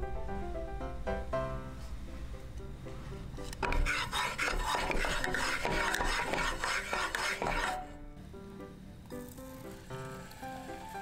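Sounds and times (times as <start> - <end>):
wooden spatula scraping pan: 3.5 - 8.0.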